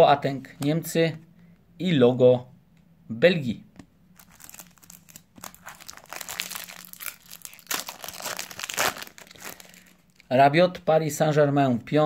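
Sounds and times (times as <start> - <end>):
foil wrapper crinkling: 4.2 - 10.3.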